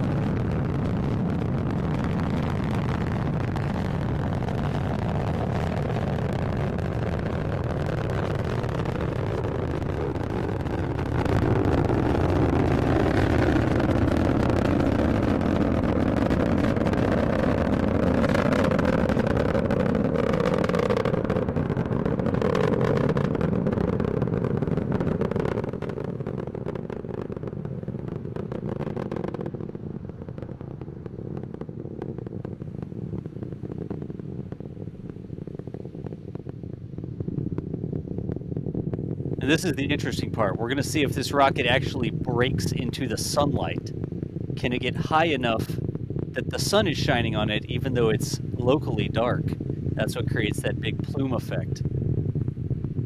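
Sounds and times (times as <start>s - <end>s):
rocket engines rumbling and crackling: 0.0s - 53.0s.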